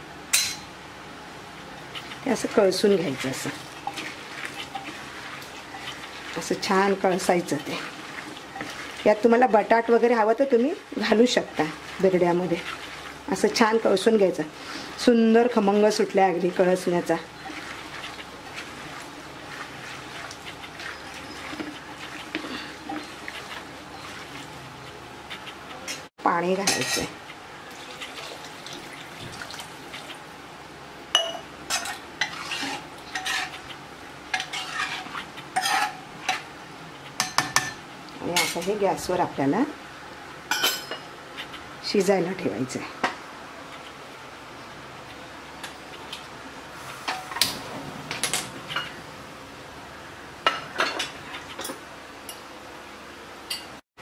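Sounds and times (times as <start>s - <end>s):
ladle scraping and clinking: 1.9s - 26.1s, 26.7s - 28.3s, 31.2s - 36.4s
water pouring into a pot: 27.7s - 30.1s
utensil clinking on metal pot: 31.2s - 32.4s.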